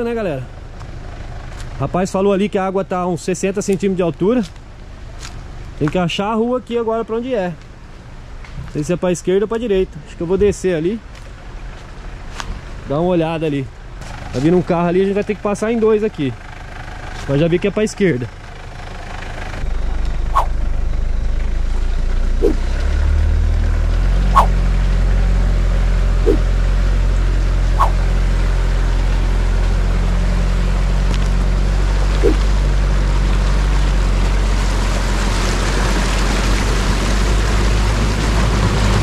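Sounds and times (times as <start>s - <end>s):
car engine running: 13.8s - 35.1s
short chirps: 20.3s - 20.6s, 24.4s - 24.6s, 27.8s - 28.0s
water washing around vehicle: 26.0s - 39.0s.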